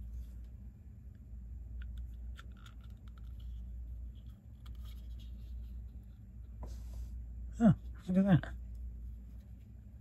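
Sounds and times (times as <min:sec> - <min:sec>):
steady low hum: 0:00.0 - 0:10.0
small plastic parts clicking: 0:01.8 - 0:03.6.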